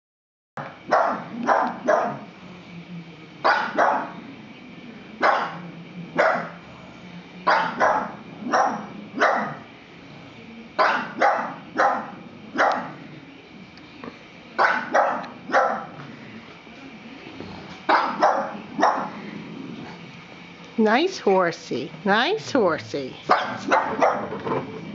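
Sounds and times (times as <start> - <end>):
dog barking: 0.6 - 2.3, 3.4 - 4.1, 5.2 - 5.6, 6.2 - 6.6, 7.5 - 9.7, 10.8 - 13.0, 14.6 - 15.9, 17.9 - 19.2, 23.3 - 24.4.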